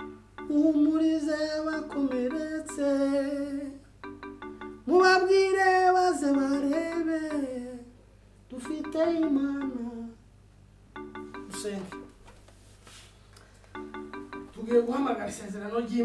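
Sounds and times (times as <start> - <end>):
person singing slow melody: 0.4 - 3.9, 4.8 - 10.2.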